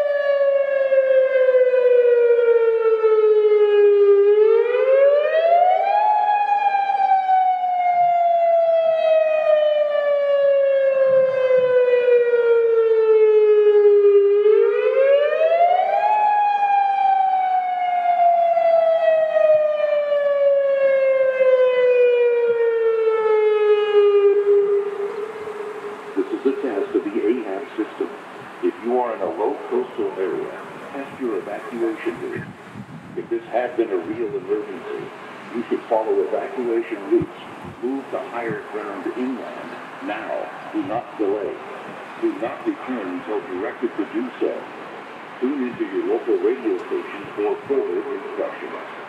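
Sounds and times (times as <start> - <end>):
electronic siren wailing: 0.0 - 28.1.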